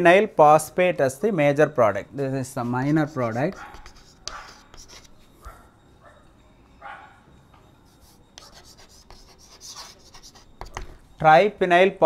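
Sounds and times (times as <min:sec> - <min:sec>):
chalk scratching on a blackboard: 0:02.5 - 0:05.3, 0:07.9 - 0:10.9.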